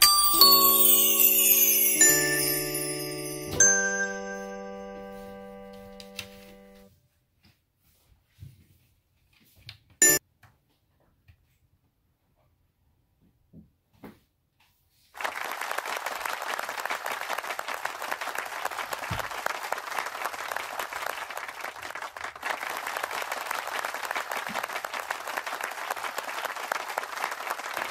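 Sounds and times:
applause: 0.2s - 3.7s, 15.2s - 27.9s.

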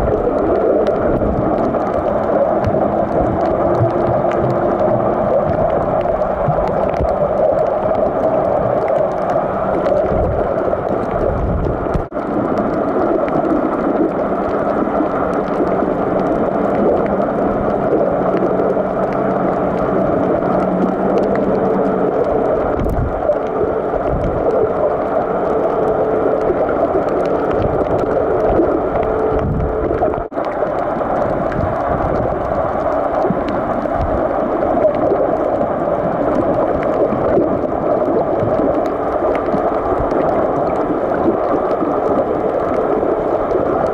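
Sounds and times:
muffled underwater noise: 0.0s - 43.9s.

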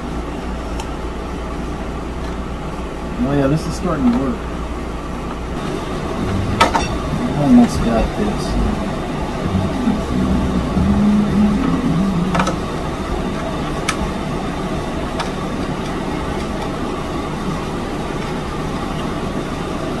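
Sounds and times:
steady low rumble: 5.4s - 14.7s.

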